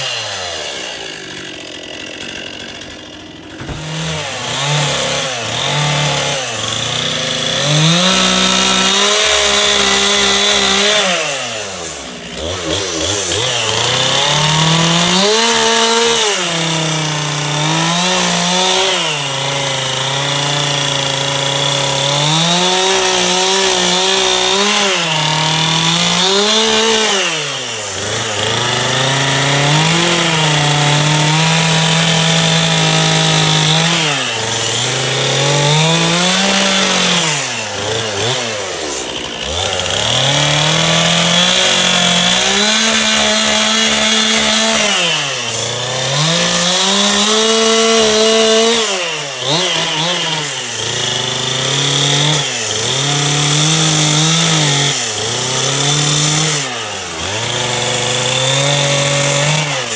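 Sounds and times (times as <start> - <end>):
chainsaw carving wood: 0.0 - 59.9.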